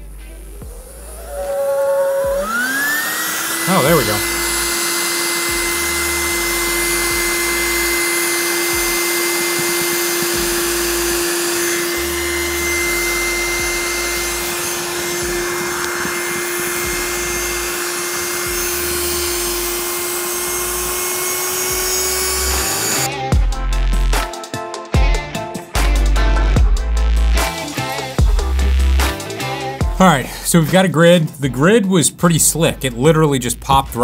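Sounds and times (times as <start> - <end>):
electric air pump humming: 0.0 - 23.2.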